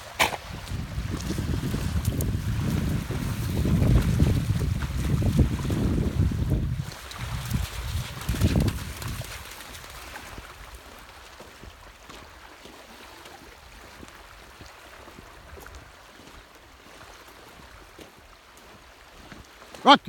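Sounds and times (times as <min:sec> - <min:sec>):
wind rumble on microphone: 0:00.0 - 0:12.3
small waves lapping on pebbles: 0:06.8 - 0:19.8.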